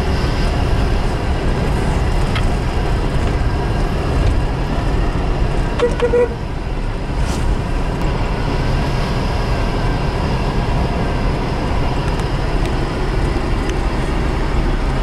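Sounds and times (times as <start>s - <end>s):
car engine running at low revs: 0.0s - 15.0s
tyre and road noise: 0.0s - 15.0s.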